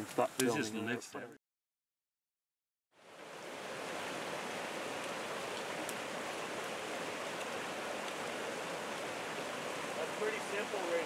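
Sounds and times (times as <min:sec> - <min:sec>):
water rushing over rocks: 0:03.0 - 0:11.0.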